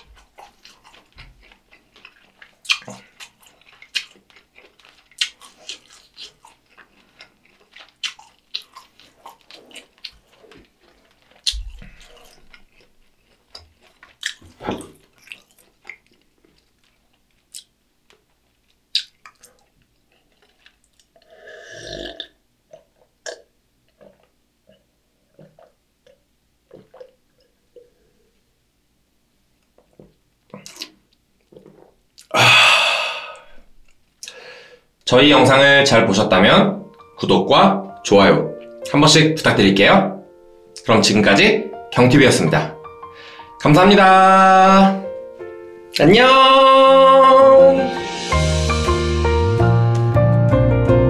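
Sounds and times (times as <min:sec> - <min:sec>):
person chewing food: 0:00.0 - 0:28.4, 0:29.6 - 0:34.8
sipping and swallowing beer: 0:24.0 - 0:28.1
throaty sound: 0:31.6 - 0:34.4.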